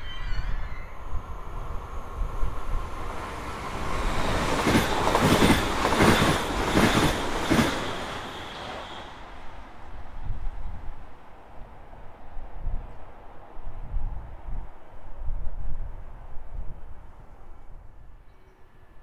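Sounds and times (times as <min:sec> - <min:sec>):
train rumble: 0:00.0 - 0:18.0
train wheels clattering: 0:04.0 - 0:09.1.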